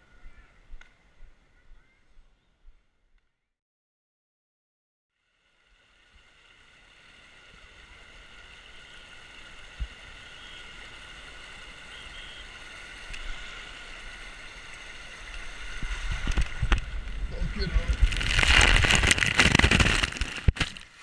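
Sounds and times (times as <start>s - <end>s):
water rushing down slide: 7.6s - 21.0s
rumbling: 15.8s - 20.9s.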